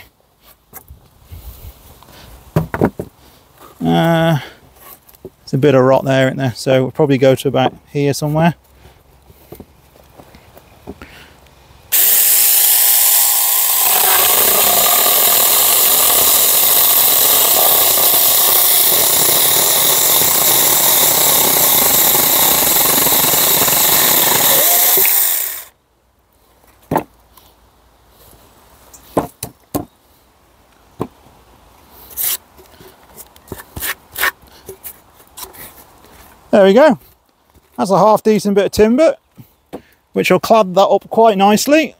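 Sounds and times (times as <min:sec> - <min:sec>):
wood knocking being handled: 0:02.5 - 0:03.2, 0:26.7 - 0:27.2
electric chainsaw cutting wood: 0:11.9 - 0:25.7.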